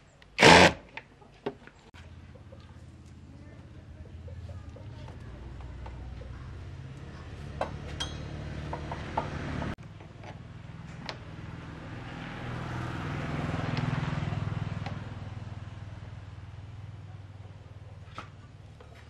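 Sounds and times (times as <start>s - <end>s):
vehicle engine humming: 1.6s - 19.0s
light metallic clinks: 8.0s - 8.4s.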